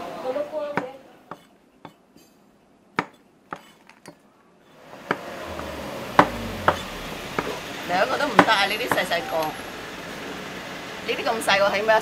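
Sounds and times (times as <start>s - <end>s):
room noise: 5.1s - 8.1s.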